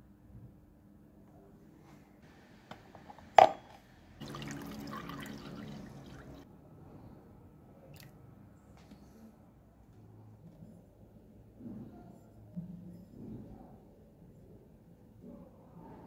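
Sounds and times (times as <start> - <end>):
liquid pouring and splashing: 4.2 - 6.4.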